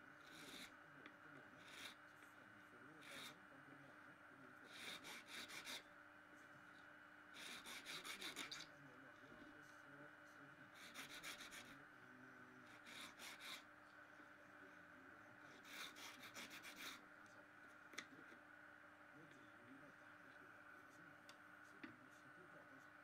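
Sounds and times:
file rasping: 0:00.2 - 0:00.7, 0:01.6 - 0:02.0, 0:04.7 - 0:05.8, 0:07.4 - 0:08.7, 0:10.7 - 0:11.8, 0:12.7 - 0:13.7, 0:15.5 - 0:17.0.

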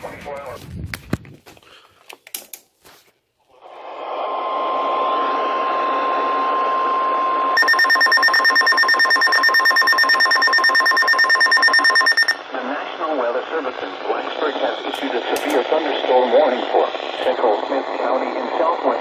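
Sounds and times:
steady alarm tone: 0:05.5 - 0:12.4
rapid high pulsing beep: 0:07.6 - 0:12.4
radio receiver hiss: 0:12.1 - 0:19.0.

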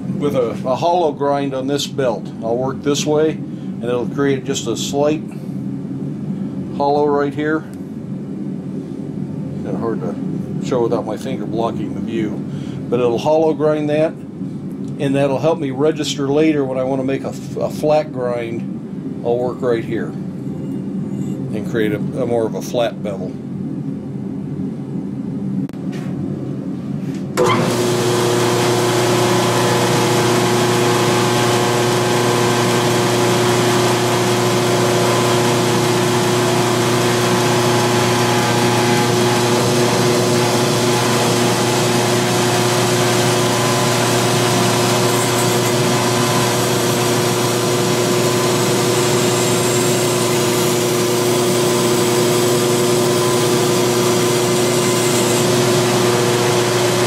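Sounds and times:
belt grinder grinding steel: 0:27.4 - 0:57.0.

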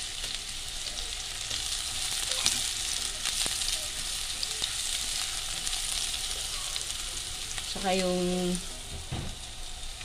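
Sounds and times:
onion and garlic sizzling in oil: 0:00.0 - 0:10.0.

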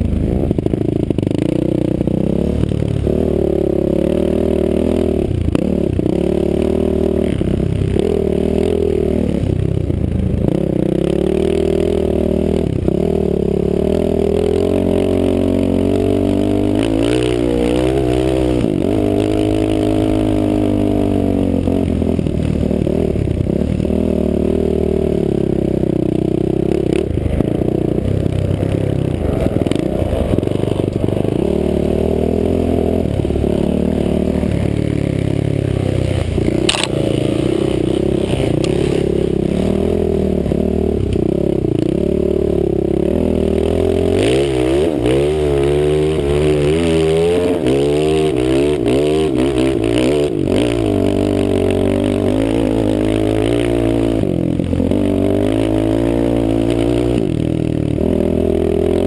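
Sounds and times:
dirt bike engine revving: 0:00.0 - 0:59.0
sharp click: 0:36.7 - 0:37.0.

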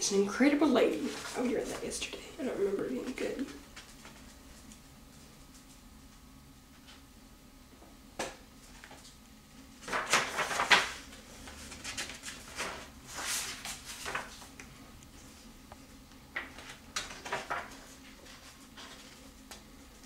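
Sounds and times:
book pages turning and rustling: 0:09.8 - 0:15.4, 0:16.4 - 0:20.0.

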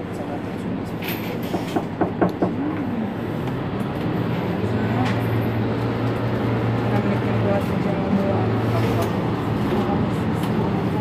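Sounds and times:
bus engine idling: 0:00.0 - 0:11.0.

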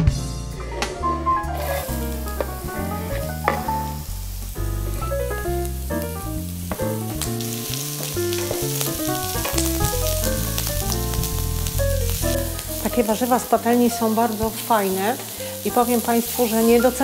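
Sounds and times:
instrumental background music: 0:00.0 - 0:17.0
wooden spatula stirring: 0:01.6 - 0:03.9, 0:08.0 - 0:10.1
vegetables sizzling in a frying pan: 0:01.6 - 0:17.0.

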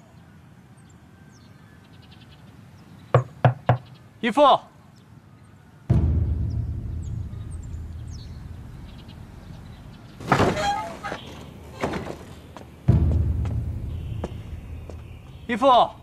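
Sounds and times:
deep booms: 0:05.9 - 0:10.2, 0:12.8 - 0:15.5
wooden doors creaking open: 0:10.2 - 0:12.7.

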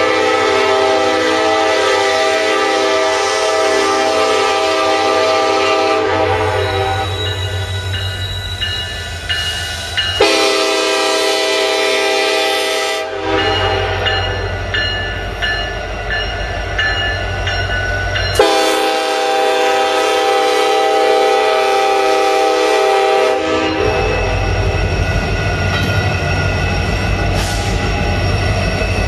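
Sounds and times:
locomotive air horn: 0:00.0 - 0:07.7, 0:10.2 - 0:14.3, 0:18.4 - 0:24.4
bell striking steadily: 0:07.2 - 0:10.2, 0:13.4 - 0:18.7.

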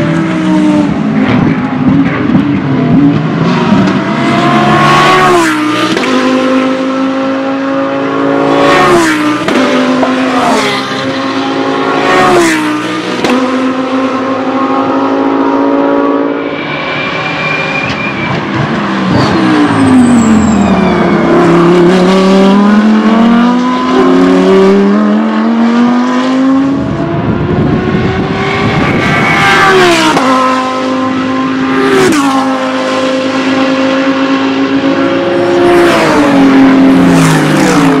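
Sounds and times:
race car engines downshifting and accelerating: 0:00.0 - 0:38.0.

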